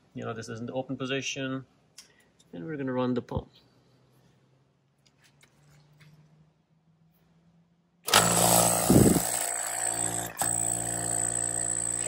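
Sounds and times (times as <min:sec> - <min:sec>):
vacuum pump hum and whine: 0:08.1 - 0:10.7.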